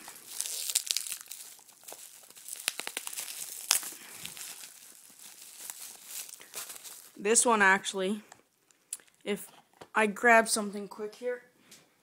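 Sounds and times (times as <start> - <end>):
bubble wrap and tape crinkling: 0.0 - 7.6.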